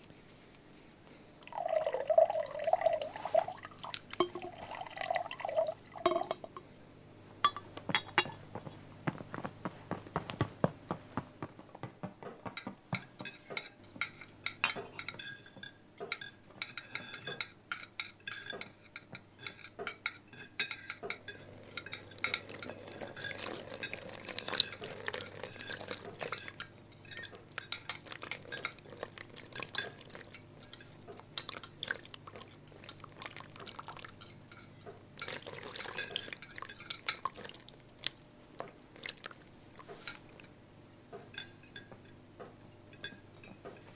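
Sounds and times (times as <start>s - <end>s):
liquid pouring: 1.4s - 6.6s, 21.3s - 26.7s, 27.9s - 34.3s, 35.2s - 40.5s
cutlery clinking on plates: 7.4s - 8.4s, 12.6s - 32.6s, 33.6s - 37.6s, 41.1s - 43.9s.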